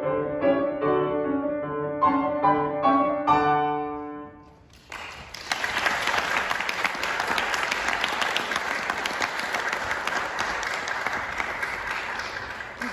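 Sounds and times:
audience applauding: 4.7s - 12.9s.

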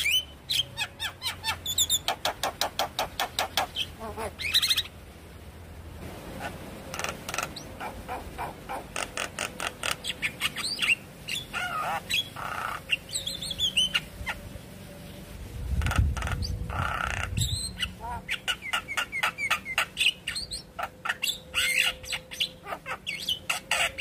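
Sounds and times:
bird clicking chatter: 1.8s - 3.9s
bird whistled gliding notes: 17.4s - 24.0s.

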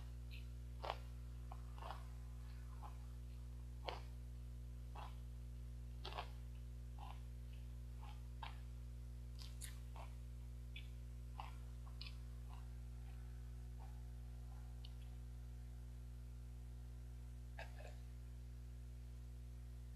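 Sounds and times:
low electrical hum: 0.0s - 19.9s
crisps being chewed: 0.3s - 2.1s, 3.8s - 4.2s, 6.0s - 6.4s, 9.3s - 10.2s.

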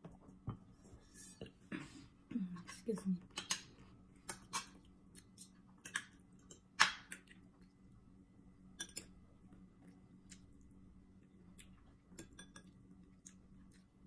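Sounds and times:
cutlery clicking on plate: 8.8s - 9.1s
chewing and mouth noises: 9.5s - 14.0s.

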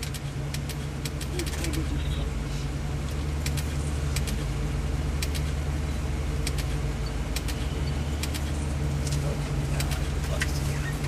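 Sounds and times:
sharp clicks: 0.0s - 1.9s, 3.1s - 4.4s, 5.2s - 5.6s, 6.4s - 9.2s
bus engine idling: 0.0s - 11.0s.

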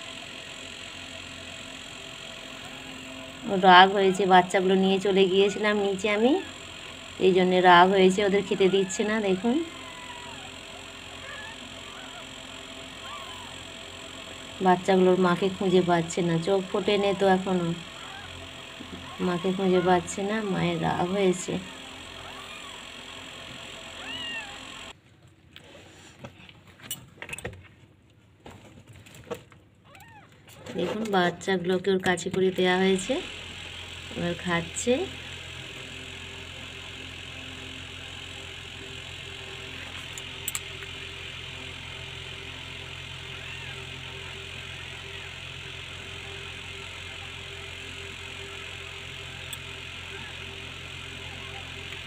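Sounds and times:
electric fan humming: 0.0s - 25.0s, 29.1s - 52.0s
kitten mewing: 8.5s - 12.4s, 13.0s - 13.5s, 17.9s - 18.3s, 21.6s - 22.8s, 24.0s - 24.7s, 43.3s - 43.9s.

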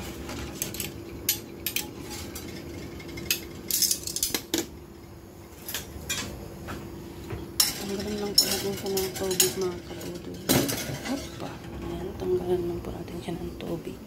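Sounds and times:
steady low hum: 0.0s - 14.0s
tongs clinking on plate and rack: 0.3s - 4.7s, 5.6s - 6.4s, 7.6s - 11.7s.

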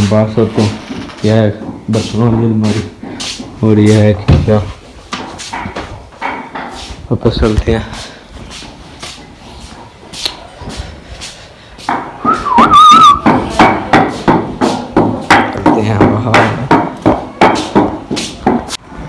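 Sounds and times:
person whistling: 12.2s - 13.3s.

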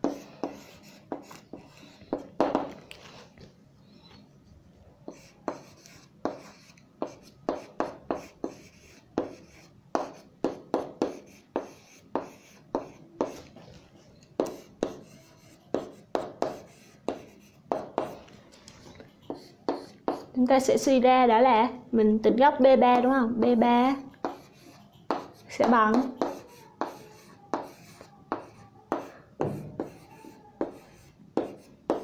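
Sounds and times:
pen scratching on paper: 0.0s - 3.2s, 5.1s - 13.7s, 14.4s - 18.2s, 18.9s - 20.4s, 24.2s - 32.0s.

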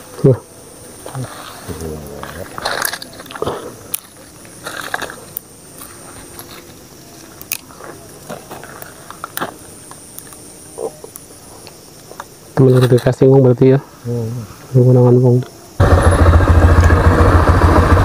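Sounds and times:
dry twigs crackling and rustling: 1.0s - 13.2s.

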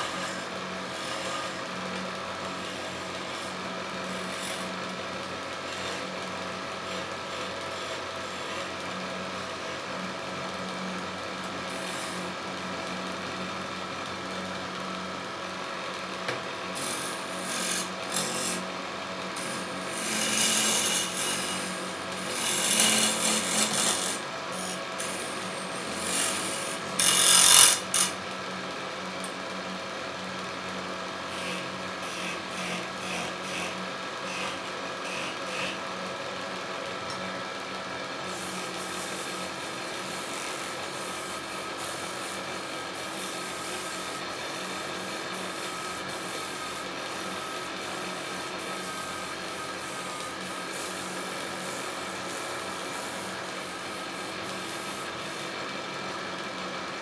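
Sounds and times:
wood lathe humming: 0.0s - 1.6s, 16.7s - 18.7s, 19.3s - 28.2s, 31.3s - 35.8s, 38.3s - 55.9s
chisel cutting spinning wood: 0.0s - 1.7s, 2.6s - 4.8s, 11.7s - 12.4s, 16.7s - 28.2s, 31.3s - 35.8s, 38.2s - 56.3s.

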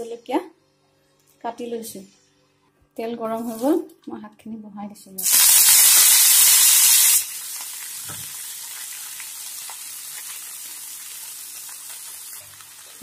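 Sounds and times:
greens sizzling in hot oil: 5.2s - 13.0s.

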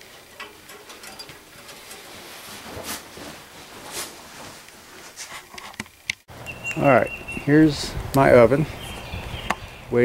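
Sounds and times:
faint rustling: 0.0s - 6.1s.

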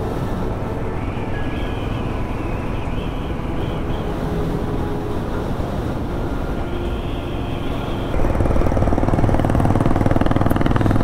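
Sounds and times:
wind rushing: 0.0s - 11.0s
motorcycle engine: 4.8s - 11.0s.

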